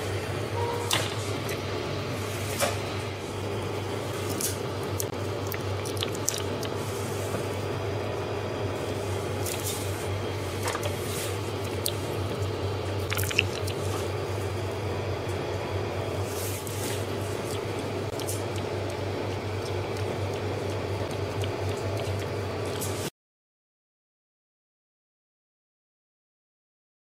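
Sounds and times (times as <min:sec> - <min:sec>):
plastic cup crinkling and clicking: 0:05.4 - 0:06.8, 0:13.0 - 0:13.9.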